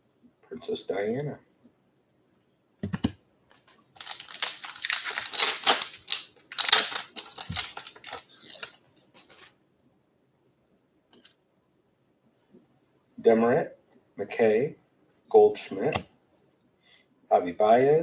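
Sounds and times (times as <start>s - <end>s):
wrapper tearing and crinkling: 3.6s - 9.5s.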